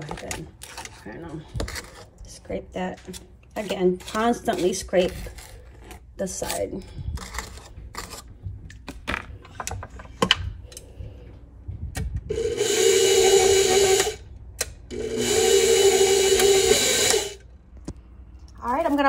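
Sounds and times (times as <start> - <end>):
stand mixer motor running: 12.3 - 14.2, 14.9 - 17.4.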